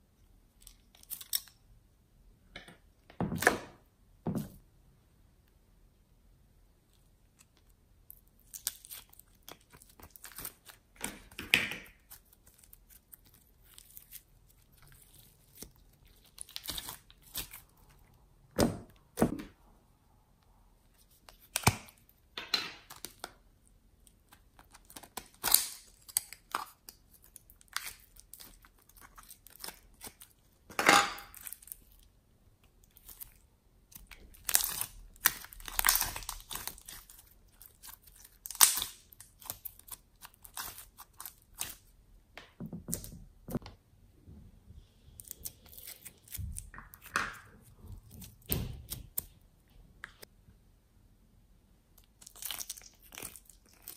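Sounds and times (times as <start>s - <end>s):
slime crackling and crinkling: 6.9s - 18.3s, 20.8s - 30.7s, 31.3s - 42.0s, 45.2s - 49.4s, 52.0s - 53.9s.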